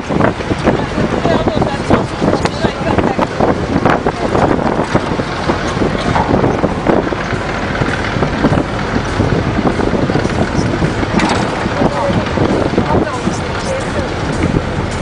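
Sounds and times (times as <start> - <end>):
road noise: 0.0 - 15.0
vehicle engine: 0.0 - 15.0
wind rushing over microphone: 0.0 - 15.0.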